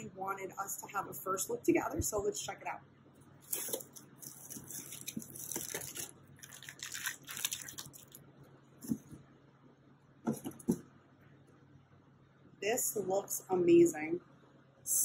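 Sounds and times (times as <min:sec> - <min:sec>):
tape tearing: 0:03.4 - 0:08.2.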